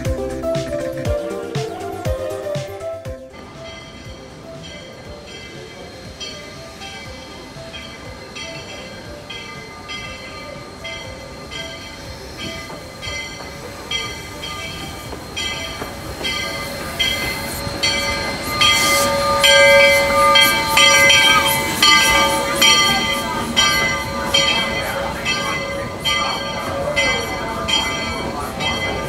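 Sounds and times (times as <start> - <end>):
locomotive bell ringing: 0.0 - 29.0
steam hissing: 0.0 - 29.0.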